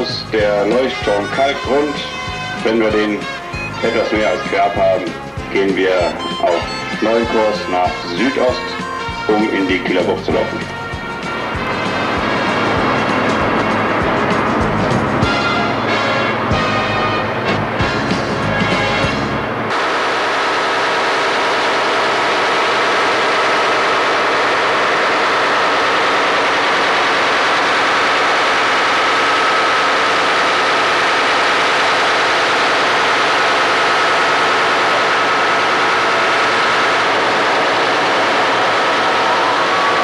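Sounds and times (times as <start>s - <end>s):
loud machinery noise: 0.0s - 40.0s.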